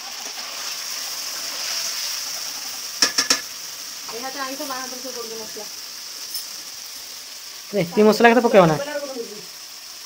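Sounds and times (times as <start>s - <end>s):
steady high hiss: 0.0s - 10.0s
spatula clinking against dishes: 3.0s - 3.5s.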